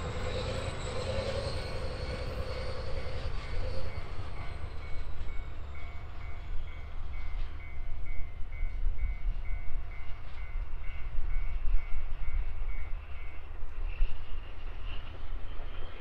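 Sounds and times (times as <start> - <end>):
diesel locomotive engine rumble: 0.0 - 16.0.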